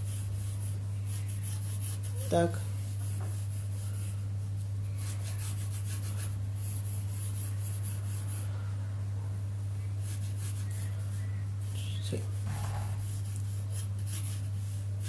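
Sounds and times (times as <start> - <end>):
pencil scratching on paper: 0.0 - 4.2, 5.0 - 8.5, 10.0 - 11.3, 12.3 - 15.0
low electrical hum: 0.0 - 15.0.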